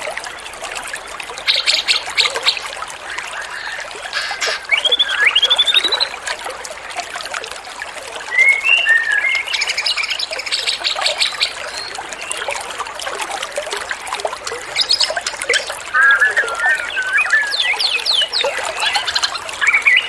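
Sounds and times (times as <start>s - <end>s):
water trickling: 0.0s - 20.0s
songbird chirps and trill: 14.8s - 20.0s.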